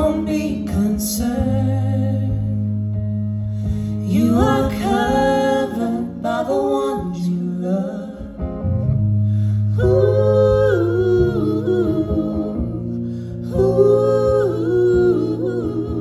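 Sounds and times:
electric guitar: 0.0s - 16.0s
women singing in harmony: 4.0s - 8.4s, 9.7s - 16.0s.

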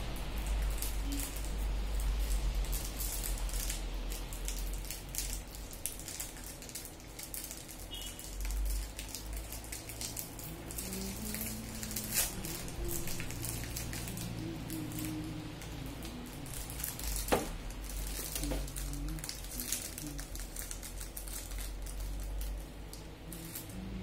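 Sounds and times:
low rumble: 8.7s - 24.0s.

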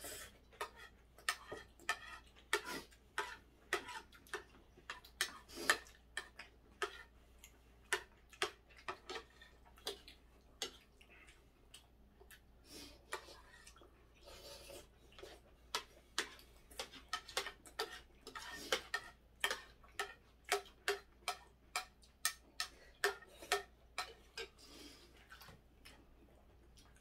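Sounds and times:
metal spoon scraping ceramic plate: 16.8s - 20.1s.

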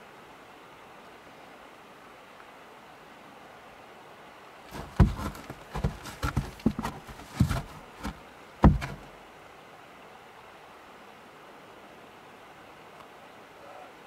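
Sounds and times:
irregular knocks and thumps: 4.7s - 9.1s.

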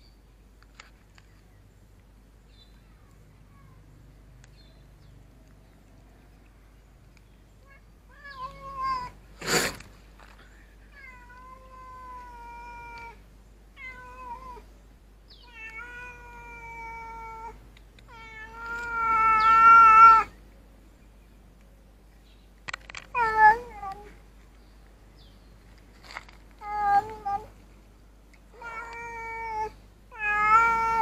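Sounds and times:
cat meowing: 7.7s - 9.2s, 15.4s - 20.3s, 23.1s - 24.1s, 26.6s - 27.5s, 28.6s - 31.0s.

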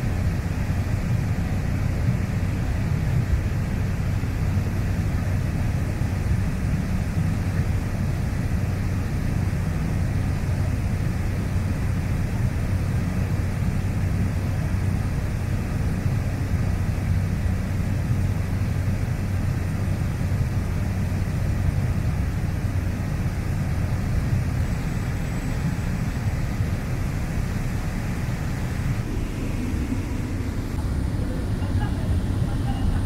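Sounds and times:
plane engine drone: 0.0s - 33.0s.

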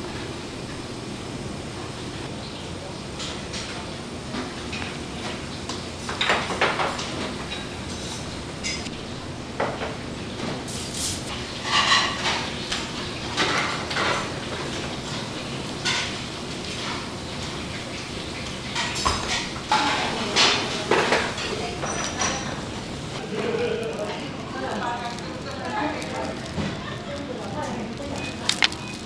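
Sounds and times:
steady background noise: 0.0s - 29.0s.

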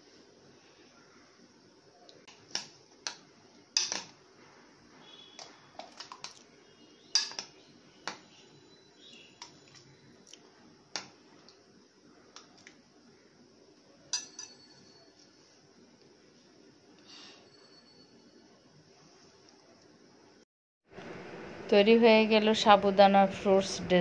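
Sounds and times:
spoon clinking against bowl: 7.1s - 7.5s, 14.1s - 15.4s.

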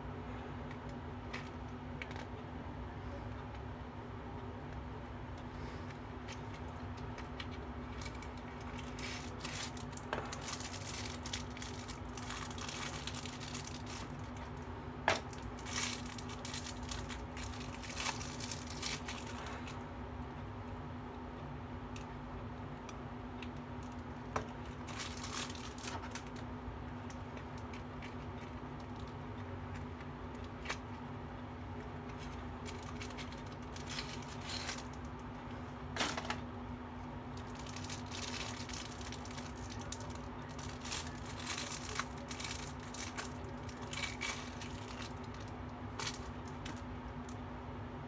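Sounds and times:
steady low hum: 0.0s - 48.0s
plastic sleeve crinkling: 6.3s - 19.8s, 23.5s - 29.2s, 31.8s - 35.3s, 37.3s - 47.4s.

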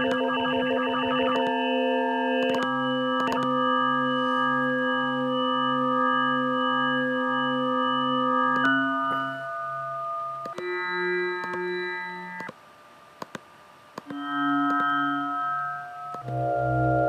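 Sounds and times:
pulsing low tone: 0.0s - 12.4s, 14.1s - 17.0s
sustained synthesizer chord: 0.0s - 12.4s, 14.1s - 17.0s
small clicks: 2.4s - 3.5s, 12.4s - 12.6s, 13.2s - 13.4s.

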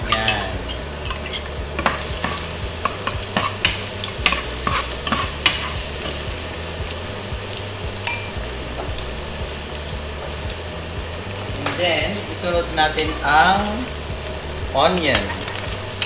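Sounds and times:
garlic sizzling in hot oil: 0.0s - 16.0s
range hood fan humming: 0.0s - 16.0s
metal spoon scraping a pot: 0.1s - 5.8s.

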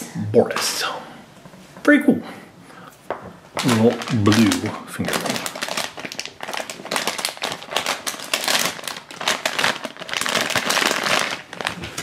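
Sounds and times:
foil packet crinkling: 3.5s - 12.0s.

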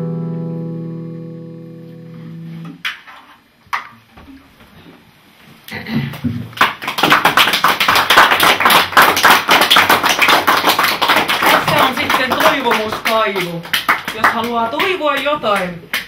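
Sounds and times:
audience clapping: 6.1s - 16.0s.

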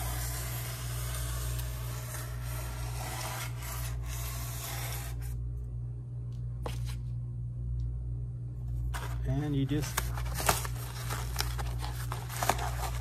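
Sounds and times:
knife sawing through foam: 0.0s - 5.3s.

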